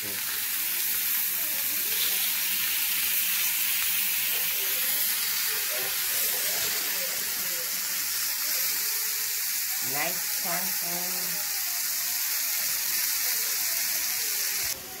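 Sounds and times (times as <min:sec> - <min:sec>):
chicken sizzling in grill pan: 0:00.0 - 0:15.0.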